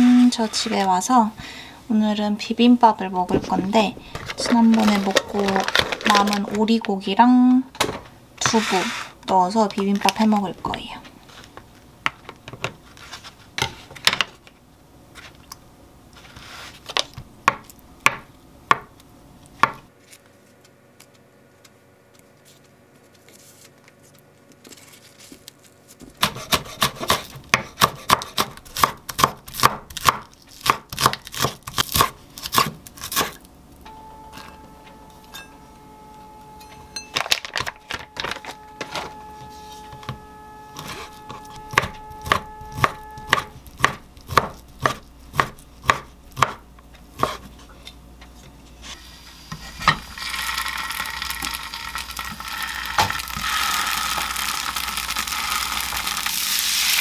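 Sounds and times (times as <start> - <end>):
faint steady hum: 0.0 - 57.0
knife chopping on wooden board: 26.2 - 33.4, 40.8 - 46.6, 47.2 - 47.5.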